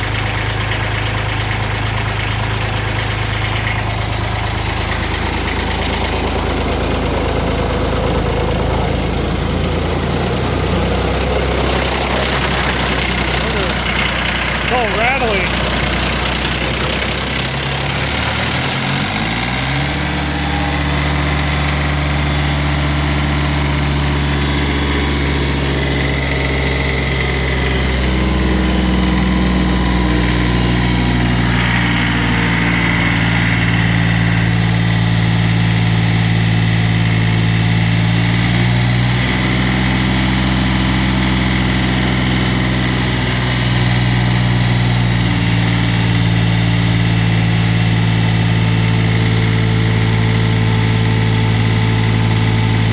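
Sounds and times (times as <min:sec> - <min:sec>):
small diesel engine idling: 0:00.0 - 0:52.9.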